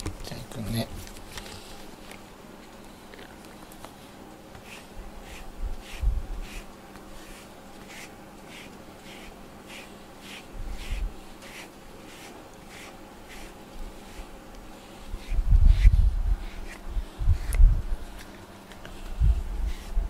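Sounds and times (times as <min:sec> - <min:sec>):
brush stroking fur: 0:04.0 - 0:20.0.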